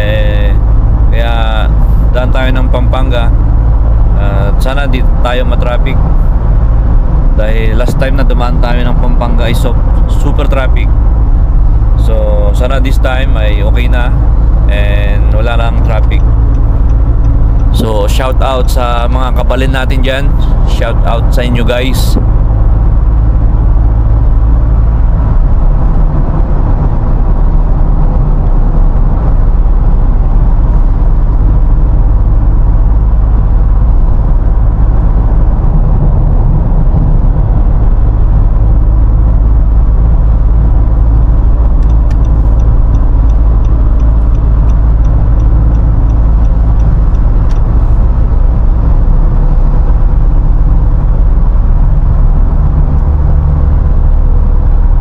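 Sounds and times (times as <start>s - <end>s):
road and engine rumble in cabin: 0.0s - 55.0s
faint rapid ticking: 40.4s - 49.0s.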